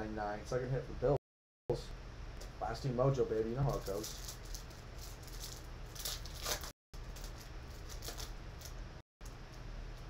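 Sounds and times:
foil pack crinkling and tearing: 3.6s - 8.8s.

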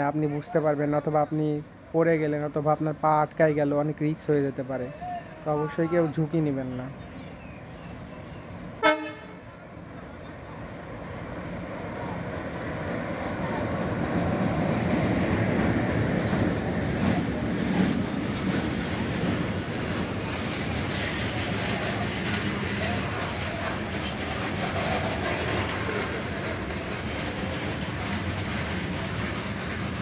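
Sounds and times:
train horn toot: 8.8s - 9.5s
locomotive engine: 8.8s - 30.0s.

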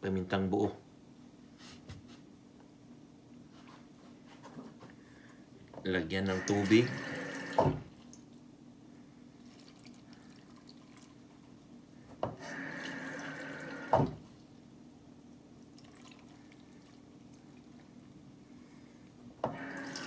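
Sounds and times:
low steady hum: 0.0s - 20.0s
tap water running into pot: 19.4s - 20.0s.

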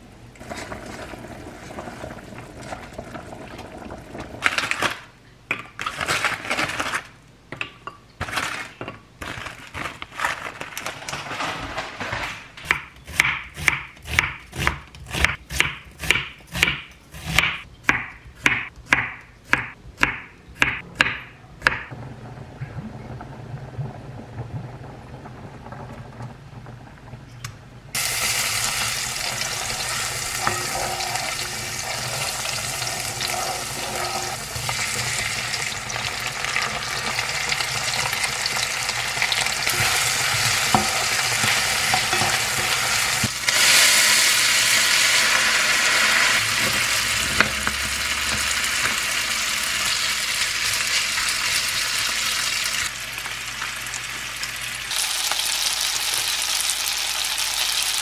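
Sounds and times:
knife chopping on wooden board: 12.7s - 21.9s
garlic sizzling in oil: 28.0s - 58.0s.

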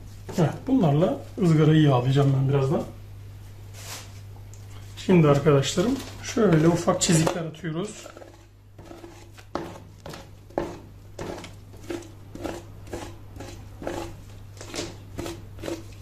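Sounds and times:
low steady hum: 0.0s - 16.0s
knife slicing meat on board: 8.2s - 16.0s.

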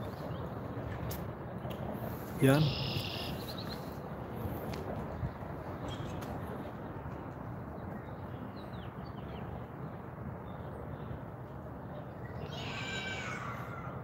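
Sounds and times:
low background rush: 0.0s - 14.0s
bird call: 2.6s - 3.9s
faint bird chirps: 2.6s - 3.9s.

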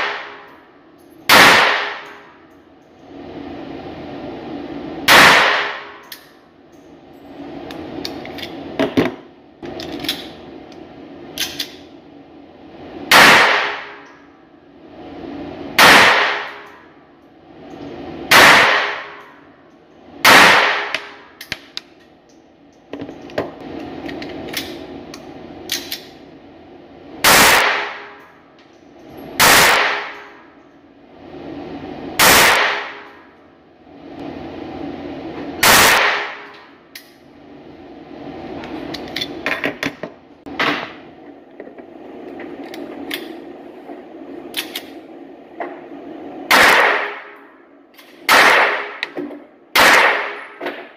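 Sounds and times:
handgun gunshots: 29.4s - 30.2s, 35.6s - 36.5s, 46.5s - 47.3s, 48.3s - 49.2s, 49.8s - 50.6s.

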